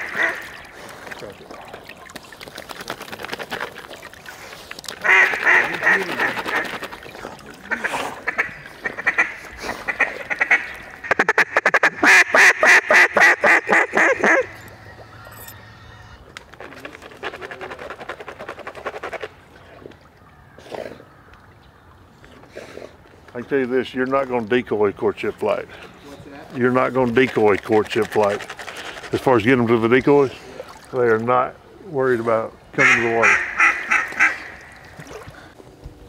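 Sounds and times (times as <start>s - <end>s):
duck call quacks: 0.0s - 0.5s, 5.0s - 6.8s, 7.7s - 14.5s, 32.8s - 34.6s.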